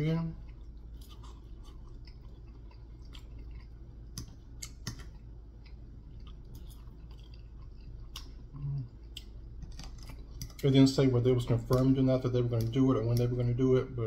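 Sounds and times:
chewing: 0:00.4 - 0:10.7
low humming voice: 0:08.4 - 0:09.1.

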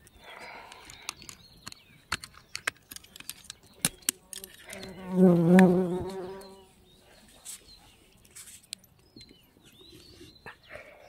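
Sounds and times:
flying insect buzzing: 0:04.8 - 0:06.6.

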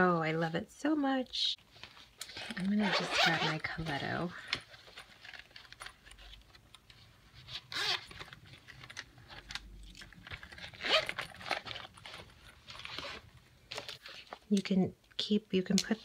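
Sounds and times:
plastic squeaks: 0:07.4 - 0:09.4, 0:10.3 - 0:12.2.

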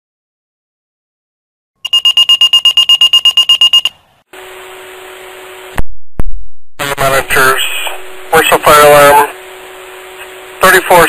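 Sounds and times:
pager fast high beeps: 0:01.8 - 0:04.0
radio hiss with low hum: 0:04.4 - 0:11.0.

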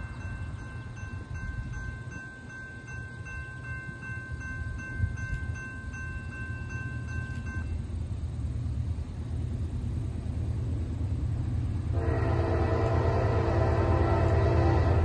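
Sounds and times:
railroad crossing bell ringing: 0:00.0 - 0:08.0, 0:11.9 - 0:15.0
steady low rumble: 0:07.6 - 0:15.0.

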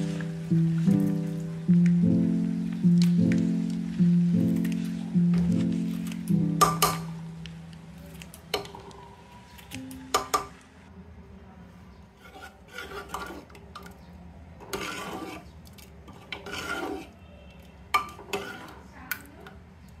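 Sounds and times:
ladle scraping metal pot: 0:12.1 - 0:14.0, 0:14.6 - 0:18.9.

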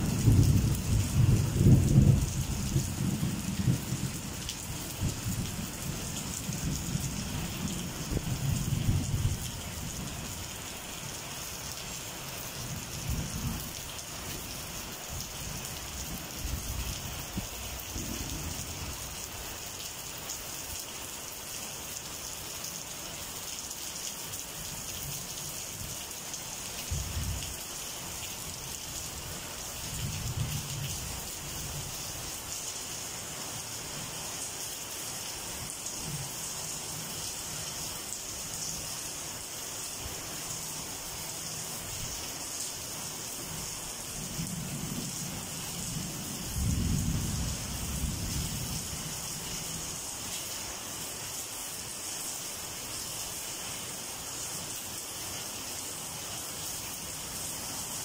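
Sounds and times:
distant thunder rolling: 0:00.0 - 0:04.2
steady rain falling: 0:00.0 - 0:58.0.

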